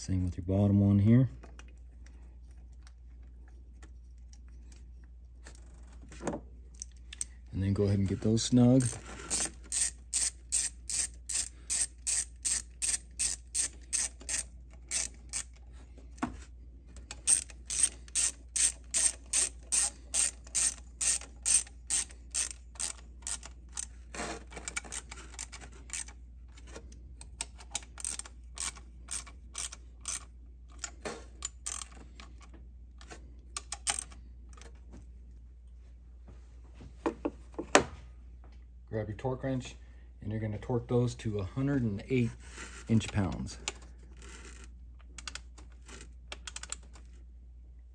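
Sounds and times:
hand ratchet clicking: 8.8 - 15.6, 17.1 - 23.9, 24.6 - 26.2, 27.2 - 32.0, 33.6 - 34.2.

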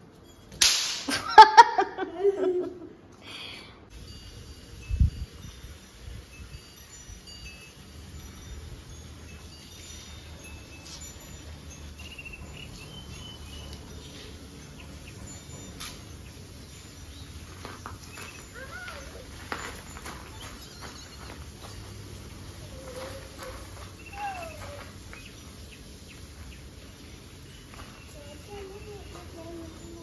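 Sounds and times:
insect calls: 6.8 - 30.0
bird chirps: 9.8 - 21.8, 22.6 - 30.0.

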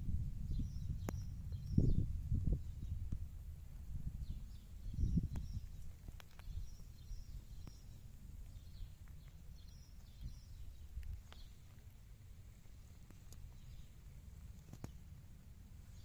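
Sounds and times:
wind buffeting microphone: 0.0 - 11.8
faint bird chirps: 0.5 - 3.0, 4.2 - 11.9.

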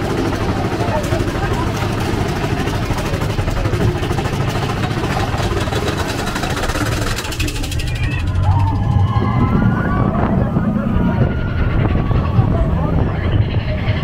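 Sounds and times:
riders' voices: 0.0 - 14.0
roller coaster cars rumbling: 0.0 - 14.0.

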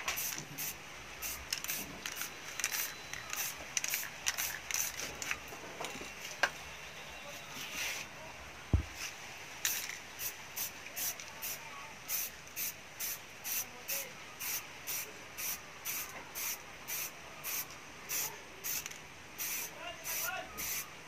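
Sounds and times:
spray can hissing: 0.1 - 5.0, 9.6 - 13.7, 14.4 - 20.8.

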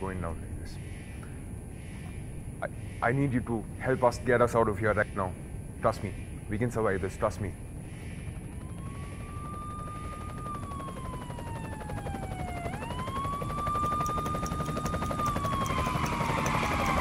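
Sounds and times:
helicopter rotors throbbing: 0.0 - 17.0
siren wailing: 8.2 - 17.0.

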